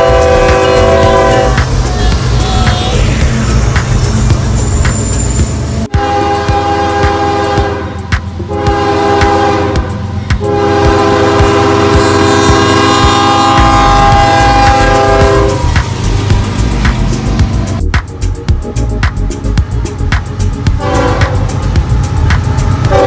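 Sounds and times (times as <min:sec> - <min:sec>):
locomotive air horn blasts: 0:00.0 - 0:01.8, 0:05.9 - 0:15.8, 0:20.8 - 0:21.6
passing freight train rumble: 0:00.0 - 0:23.0
train wheels rumbling on rails: 0:00.0 - 0:23.0.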